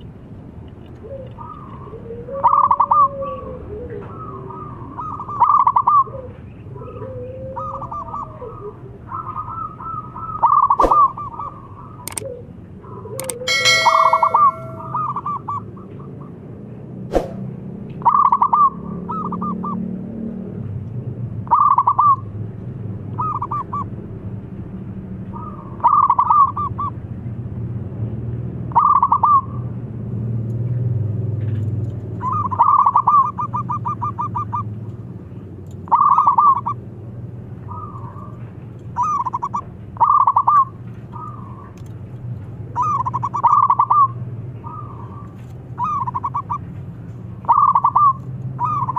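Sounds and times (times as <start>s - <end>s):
dove cooing: 1.0s - 15.3s, 32.2s - 34.7s, 35.9s - 36.8s, 37.7s - 41.7s, 42.8s - 46.6s, 47.4s - 48.9s
single click: 12.1s - 12.3s.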